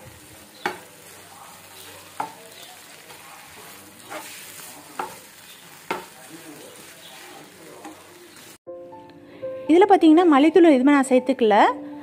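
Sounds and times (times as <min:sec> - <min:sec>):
frying sizzle: 0:00.0 - 0:08.6
spatula scraping and knocking pan: 0:00.6 - 0:08.0.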